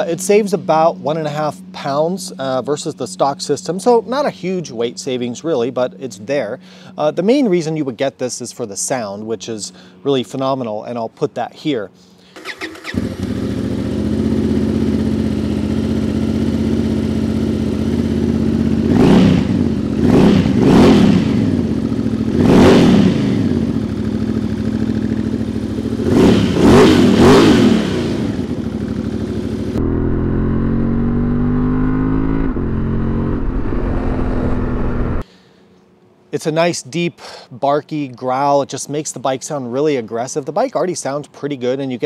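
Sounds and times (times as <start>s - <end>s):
motorcycle engine revving: 12.4s - 35.2s.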